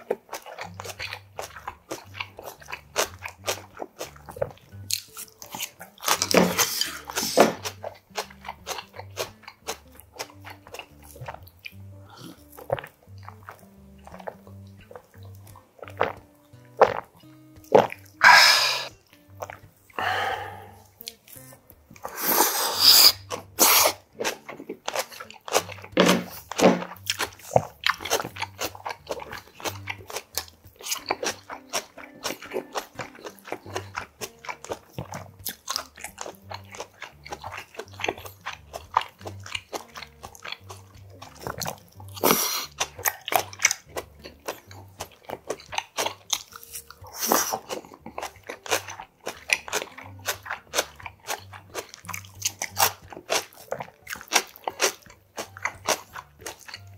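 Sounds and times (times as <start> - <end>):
crunchy chewing: 0.0 - 56.9
noodle slurps: 5.4 - 9.9, 17.7 - 19.0, 22.0 - 30.3, 32.7 - 55.0.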